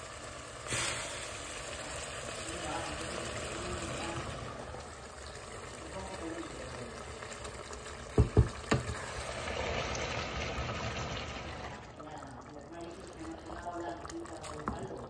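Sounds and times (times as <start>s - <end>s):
liquid hissing in hot pan: 0.0s - 11.8s
wooden spatula knocking pan: 8.2s - 9.0s.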